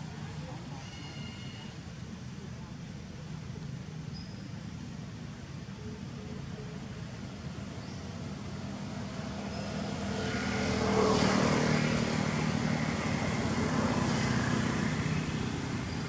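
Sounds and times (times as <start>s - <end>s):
vehicle engine passing by: 8.0s - 16.0s.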